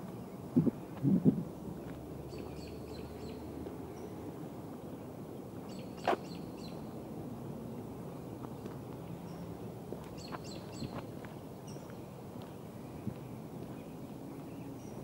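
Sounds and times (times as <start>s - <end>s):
low rumble: 0.5s - 1.7s.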